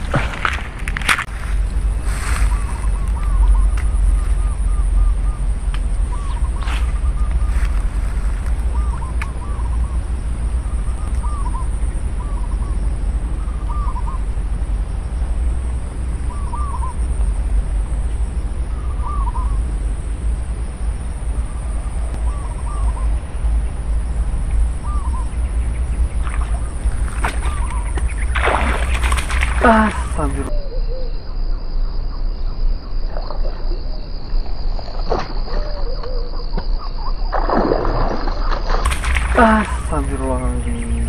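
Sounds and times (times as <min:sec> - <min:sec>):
wind rumble on microphone: 0:00.0 - 0:41.0.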